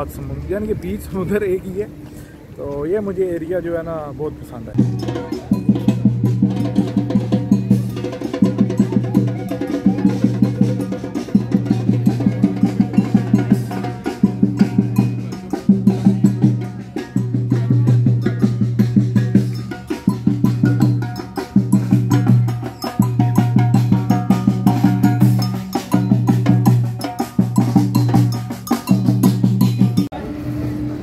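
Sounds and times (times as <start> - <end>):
marching drums beating: 4.7 - 30.1.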